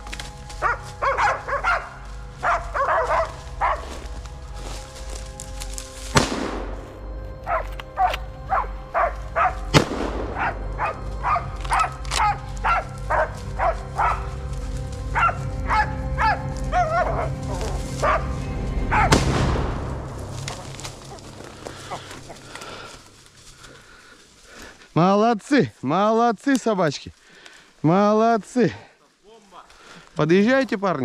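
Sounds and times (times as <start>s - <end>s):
dogs barking: 0.2s - 4.6s, 7.4s - 19.3s, 20.5s - 22.9s
sharp crack: 5.4s - 7.0s, 9.7s - 10.6s, 19.0s - 23.3s.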